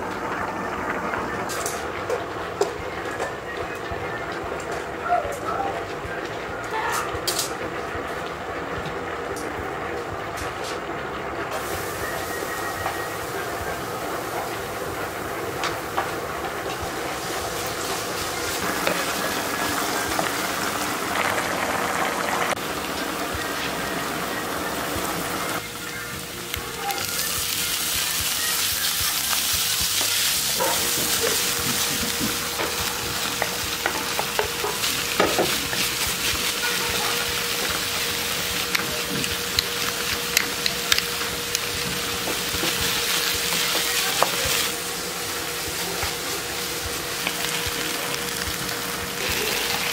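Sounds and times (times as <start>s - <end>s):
meat sizzling in a frying pan: 11.6s - 49.9s.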